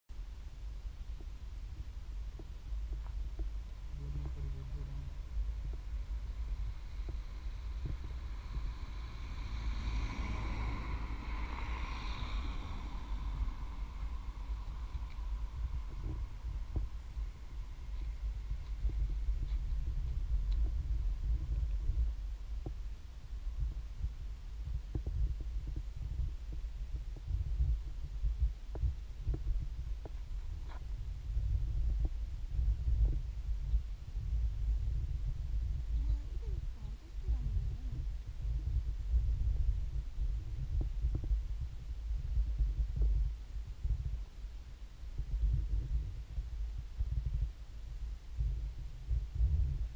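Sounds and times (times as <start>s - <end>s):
wind rumbling on microphone: 0.1s - 49.9s
road noise: 2.0s - 28.2s.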